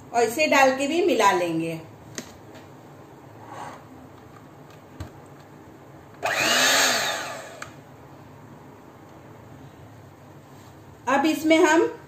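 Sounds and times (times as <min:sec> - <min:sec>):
electric hand mixer whirring: 0:06.2 - 0:07.8.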